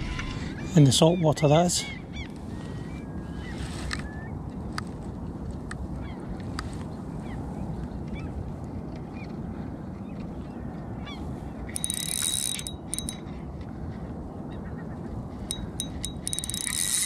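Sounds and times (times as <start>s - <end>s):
fishing reel drag ticking: 11.7s - 13.2s, 15.4s - 17.0s.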